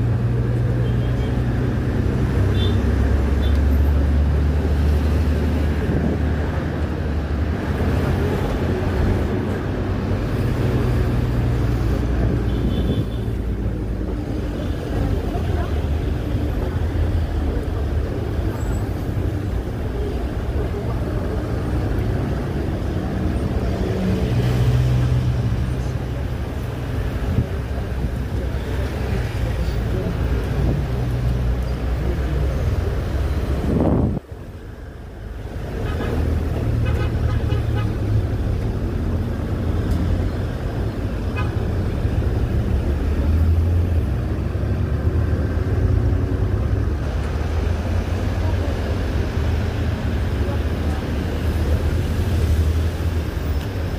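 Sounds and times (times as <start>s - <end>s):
traffic road noise: 0.0s - 53.9s.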